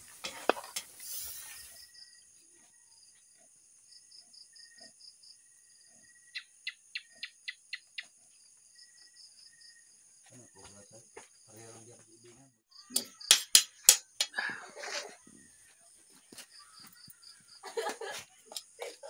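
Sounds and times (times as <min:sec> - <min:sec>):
wok sizzling: 0:00.0 - 0:01.9
crickets trilling: 0:00.0 - 0:15.7.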